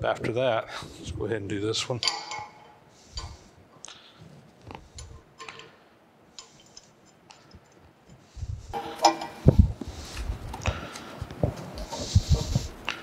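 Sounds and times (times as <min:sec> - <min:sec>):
light metal clicks and clinks: 0:02.0 - 0:03.4, 0:04.9 - 0:08.2.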